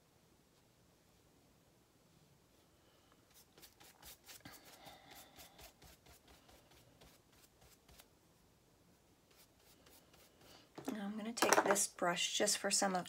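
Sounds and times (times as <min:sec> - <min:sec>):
watercolour brush strokes on paper: 0:02.5 - 0:08.1, 0:09.2 - 0:10.7.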